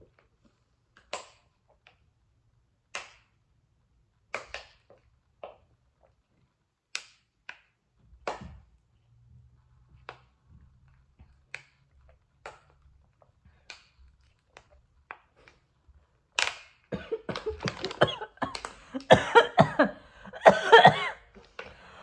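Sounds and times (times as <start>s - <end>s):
person coughing and sputtering: 16.9s - 21.4s.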